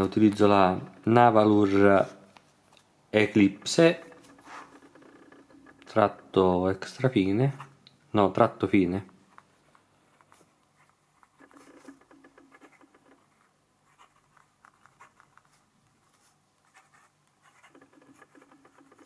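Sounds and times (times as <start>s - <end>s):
fountain pen scratching on paper: 10.1s - 19.0s.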